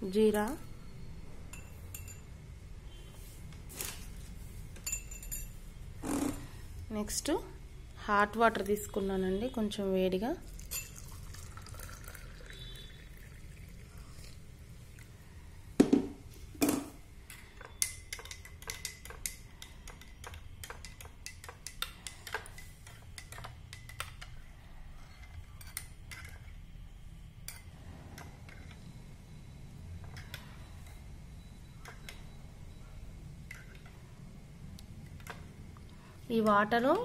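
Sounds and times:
spoon clinking against glass: 0:01.5 - 0:02.3, 0:10.5 - 0:13.4.

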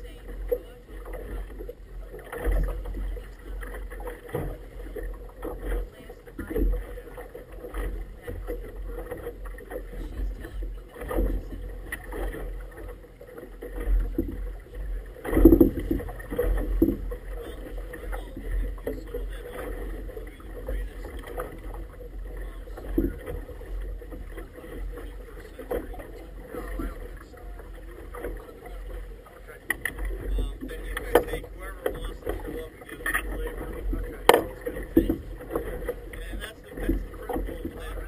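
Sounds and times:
wind rumbling on microphone: 0:00.0 - 0:28.9
water slapping inflatable boat: 0:00.0 - 0:38.0.

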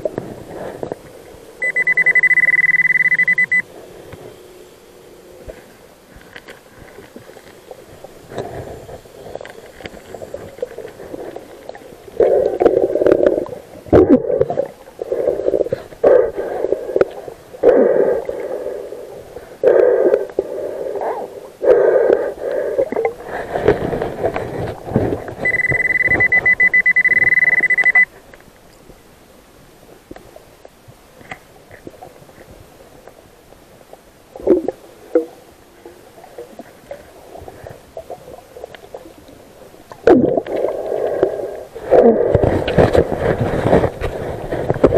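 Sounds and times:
metal detector high beep: 0:01.6 - 0:03.7, 0:25.4 - 0:28.1.

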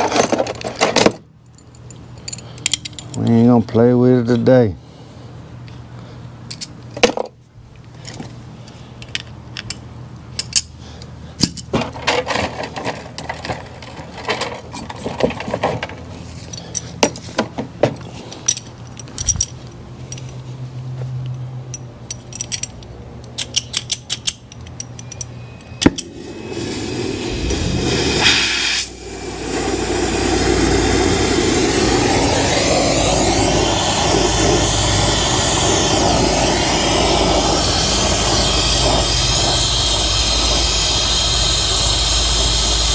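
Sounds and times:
metallic clicks and clinks: 0:00.0 - 0:03.6, 0:09.0 - 0:10.7, 0:16.4 - 0:17.2, 0:18.1 - 0:20.4, 0:21.3 - 0:26.1
gas hissing: 0:25.8 - 0:42.9
torch flame rushing: 0:25.8 - 0:42.9.

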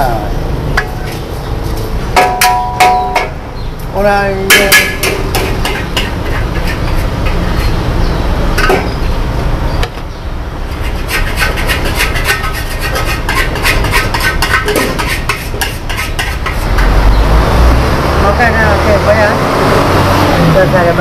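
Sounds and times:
metal spatula scraping a wok: 0:00.8 - 0:03.3, 0:04.5 - 0:08.0, 0:10.6 - 0:17.2.

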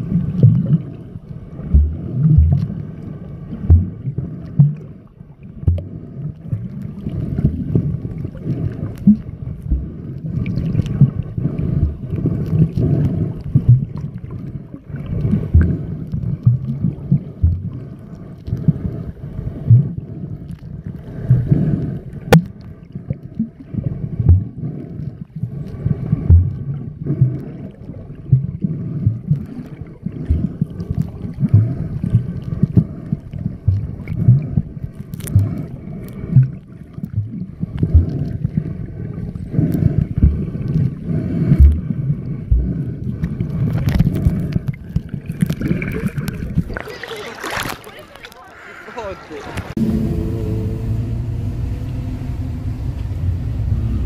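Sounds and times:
muffled underwater water sloshing: 0:00.0 - 0:54.0.

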